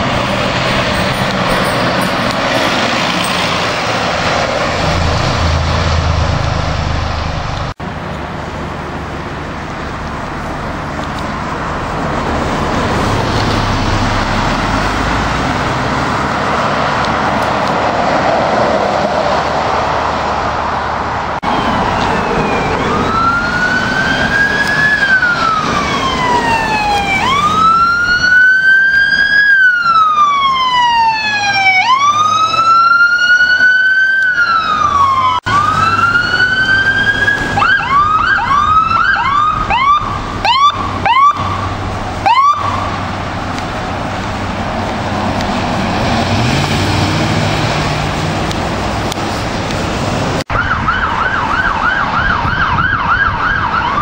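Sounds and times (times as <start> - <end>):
traffic and engine noise: 0.0 - 54.0
electronic siren wailing and yelping: 21.4 - 43.0, 50.5 - 54.0.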